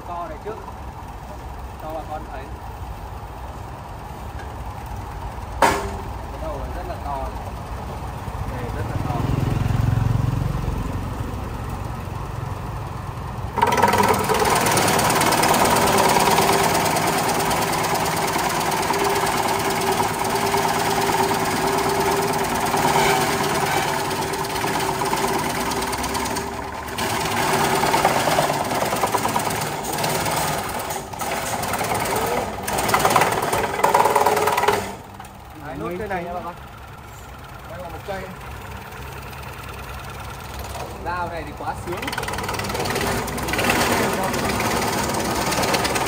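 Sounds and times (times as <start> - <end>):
herb slicer motor whine: 13.4 - 41.1, 41.8 - 46.0.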